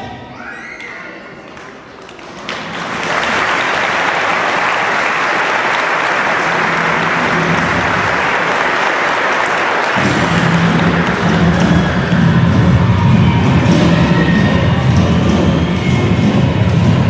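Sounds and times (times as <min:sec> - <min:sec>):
audience applauding: 0:01.5 - 0:14.0.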